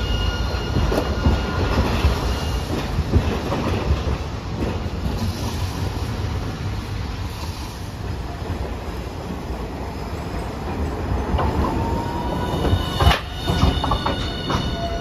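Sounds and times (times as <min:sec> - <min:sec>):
high wheel squeal: 0:00.0 - 0:02.9, 0:11.7 - 0:15.0
tram rumbling: 0:00.0 - 0:15.0
wheels clacking on rail joints: 0:00.5 - 0:05.9, 0:10.5 - 0:15.0.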